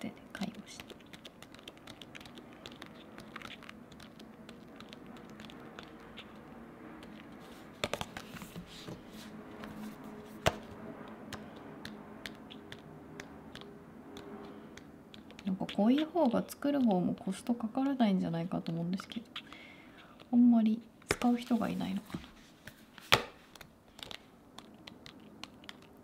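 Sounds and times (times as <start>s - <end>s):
paper pages turning: 0.9s - 11.5s.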